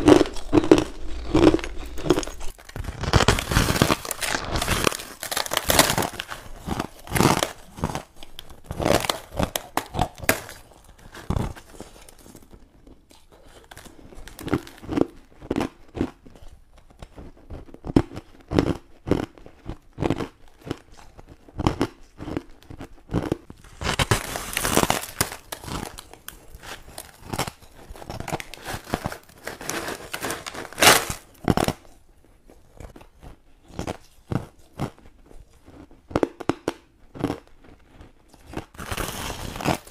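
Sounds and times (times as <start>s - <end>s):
crushed ice crunching bites: 0.0s - 16.3s, 21.6s - 32.0s, 35.7s - 39.9s
crackling chewing of ice: 0.0s - 39.9s.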